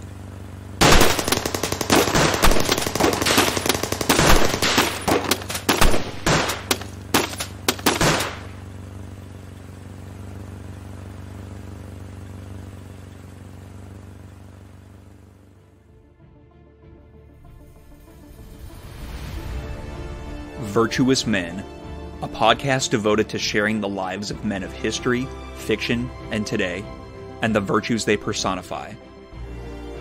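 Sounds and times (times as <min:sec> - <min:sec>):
gunfire volley: 0:00.8 - 0:08.6.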